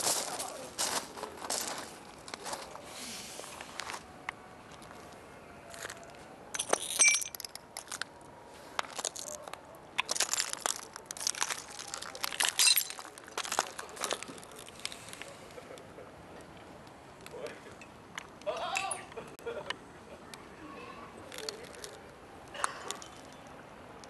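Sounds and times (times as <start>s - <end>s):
broken glass crunching and clinking: 6.6s - 8.0s, 10.0s - 14.8s, 22.8s - 23.4s.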